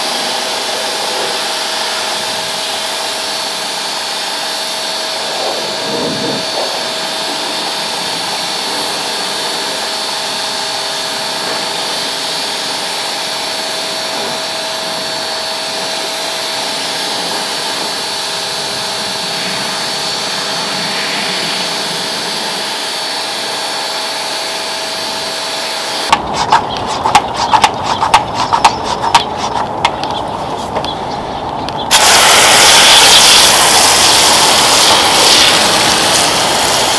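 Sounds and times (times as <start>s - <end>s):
pressure washer running: 0.0s - 30.2s, 31.9s - 36.9s
faint motor whine: 0.0s - 36.9s
spray spattering on plastic: 31.9s - 36.9s.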